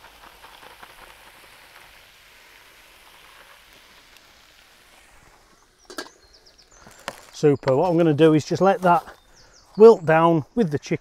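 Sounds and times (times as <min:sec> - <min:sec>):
chicken sizzling in oil: 0:00.0 - 0:07.1.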